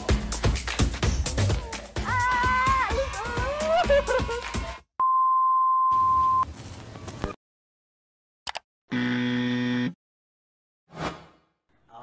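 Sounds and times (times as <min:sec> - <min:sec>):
buzzer: 0:08.9 - 0:10.0.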